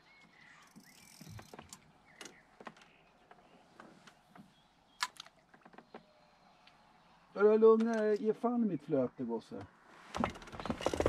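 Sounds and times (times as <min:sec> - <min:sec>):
handling clicks and knocks: 0:10.2 - 0:11.0.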